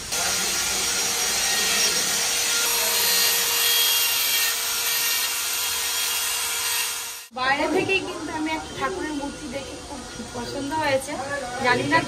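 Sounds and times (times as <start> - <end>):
die grinder grinding stone: 0.1 - 7.3.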